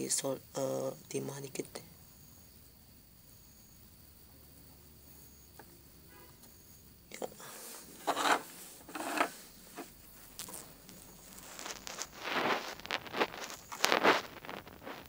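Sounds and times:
rustling and rubbing: 0:07.4 - 0:15.0.

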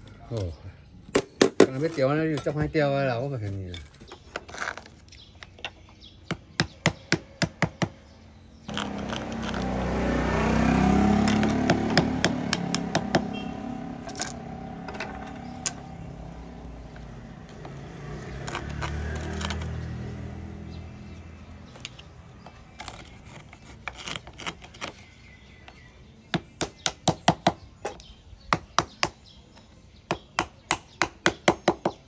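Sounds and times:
passing vehicle engine rumble: 0:08.6 - 0:23.2.

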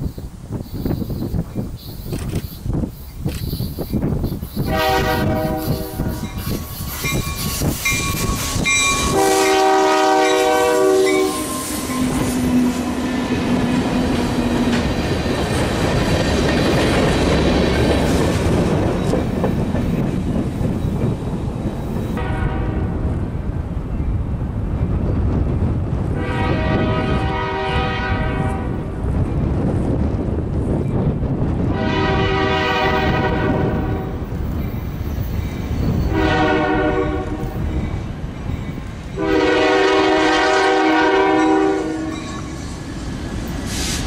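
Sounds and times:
rail cars rolling rumble: 0:00.0 - 0:44.0
distant train horn: 0:04.6 - 0:06.6, 0:07.9 - 0:13.7, 0:22.2 - 0:23.0, 0:26.1 - 0:28.9, 0:31.7 - 0:34.2, 0:36.0 - 0:37.7, 0:39.2 - 0:42.6
locomotive air horn blasts: 0:04.7 - 0:06.3, 0:08.7 - 0:12.8, 0:22.2 - 0:23.0, 0:26.2 - 0:28.8, 0:31.7 - 0:34.1, 0:36.1 - 0:37.5, 0:39.2 - 0:42.3.

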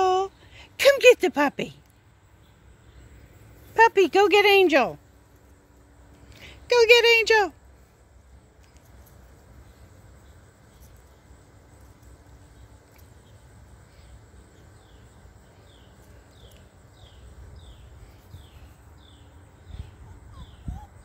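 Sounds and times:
bird chirping: 0:14.0 - 0:21.0.

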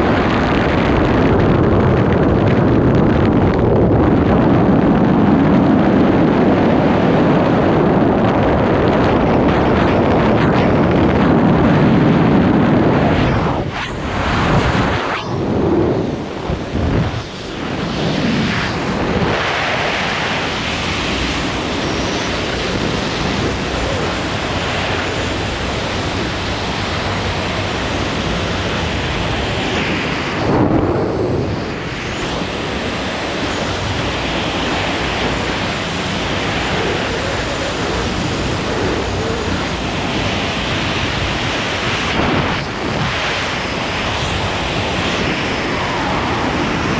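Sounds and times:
airflow buffeting microphone: 0:00.0 - 0:46.9.

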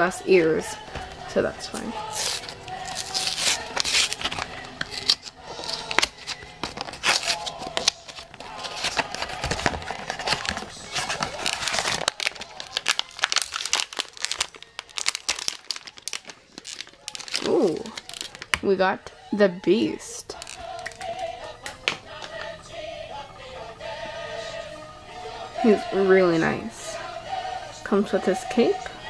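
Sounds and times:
foil pouch crinkling: 0:01.7 - 0:18.7, 0:20.3 - 0:21.6
cardboard box opening: 0:02.1 - 0:18.5.

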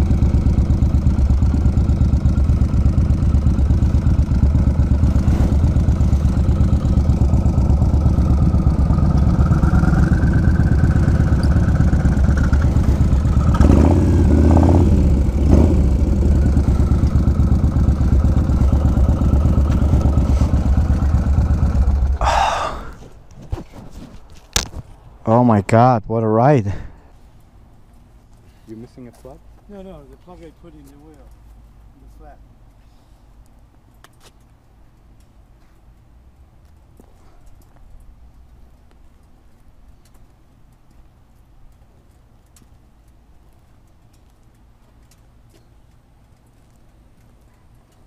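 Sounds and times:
motorcycle engine running: 0:00.0 - 0:22.4.

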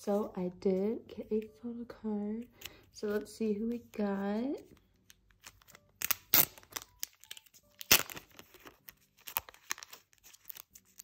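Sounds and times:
plastic sleeve crinkling: 0:05.0 - 0:11.0.

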